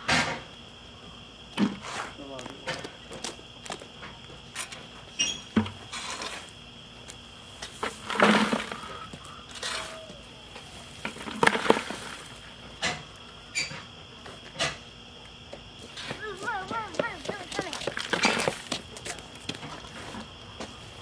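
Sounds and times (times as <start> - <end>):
clicks of wood chips: 5.6 - 13.3, 15.6 - 20.8
wood chips crunching in bucket: 5.9 - 12.8, 15.8 - 21.0
footsteps: 15.5 - 21.0.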